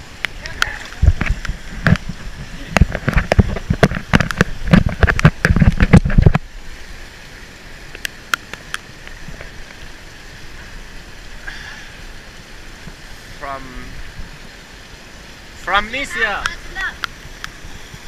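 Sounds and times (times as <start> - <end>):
rain hiss: 0.0 - 18.0
raindrops knocking on camera: 0.2 - 6.5.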